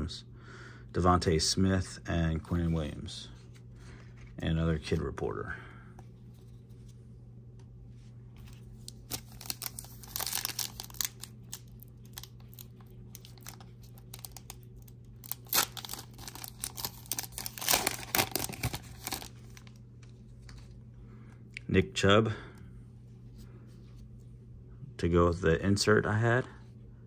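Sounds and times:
foil wrapper crinkling: 8.8s - 19.8s.

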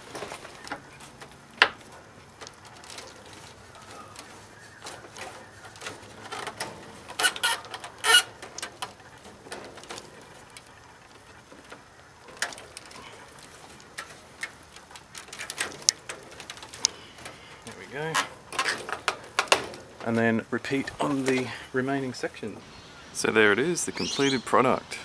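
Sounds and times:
screw creaking as screwdriver turns: 6.2s - 8.8s.

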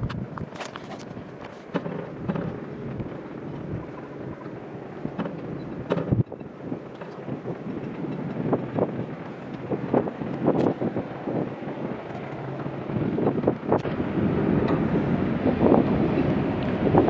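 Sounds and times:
knocks and crackles: 0.0s - 10.8s
wind buffeting microphone: 0.0s - 17.0s.

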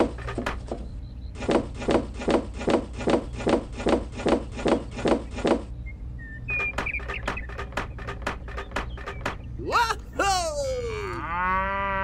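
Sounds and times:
light wooden knocks: 6.6s - 9.5s.

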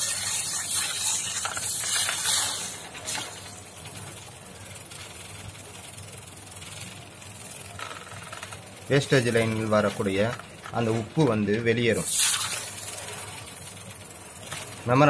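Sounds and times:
pressurized water spraying: 0.0s - 3.6s, 12.0s - 13.4s.

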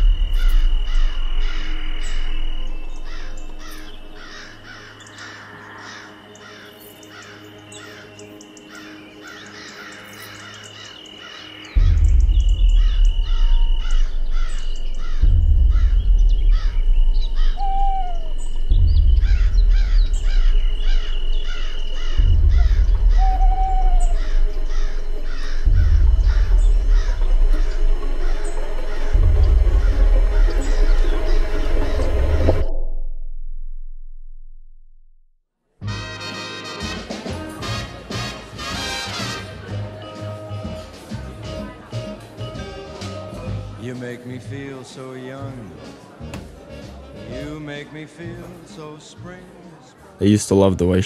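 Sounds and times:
deep bass drone: 0.0s - 5.3s, 11.7s - 35.4s
rapid bird calls: 0.0s - 32.6s
steady high tone: 11.9s - 32.7s.

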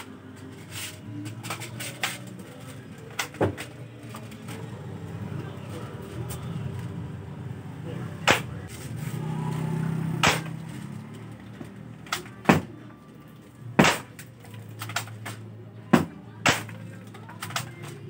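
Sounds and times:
airsoft rifle shots: 10.2s - 10.6s, 13.8s - 14.2s, 16.0s - 16.8s.

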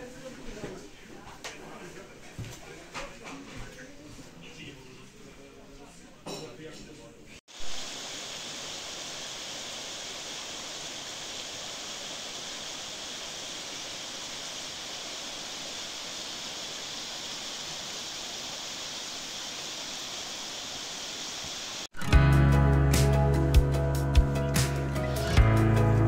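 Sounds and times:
stream rushing over rocks: 7.5s - 21.9s.

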